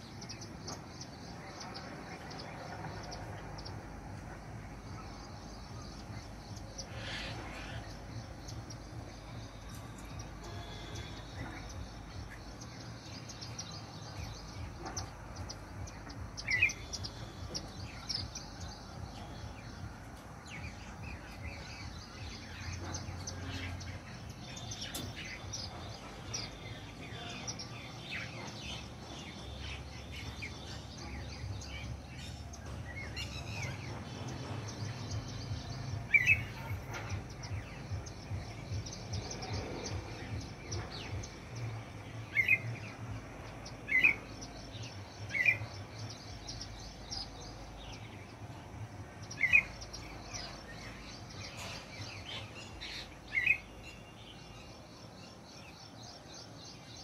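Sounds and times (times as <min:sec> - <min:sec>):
songbirds chirping: 0:00.0 - 0:57.0
loud short bird calls: 0:06.9 - 0:07.9.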